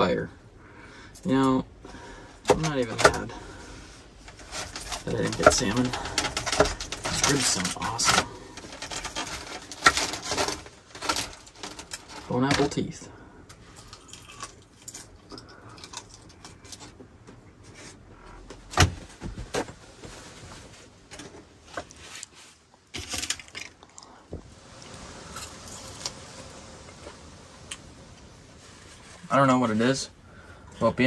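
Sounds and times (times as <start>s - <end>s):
aluminium foil crinkling: 4.3s - 12.4s, 24.7s - 26.5s.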